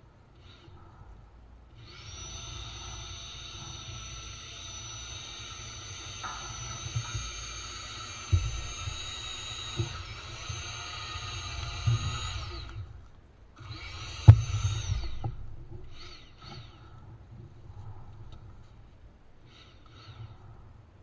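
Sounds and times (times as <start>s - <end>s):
electric tiller motor whining: 1.8s - 16.9s
low thuds: 3.5s - 13.0s, 13.6s - 19.1s.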